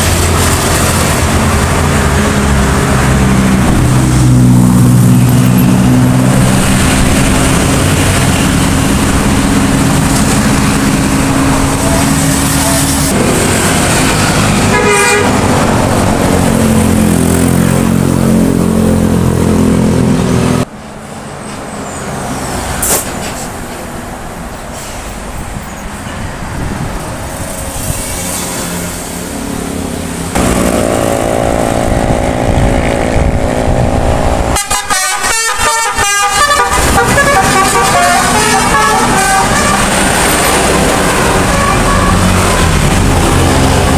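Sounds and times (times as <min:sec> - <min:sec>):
bus engines: 0:00.0 - 0:43.9
road traffic: 0:00.0 - 0:43.9
multi-tone bus horn tunes: 0:13.9 - 0:15.6, 0:34.4 - 0:43.0.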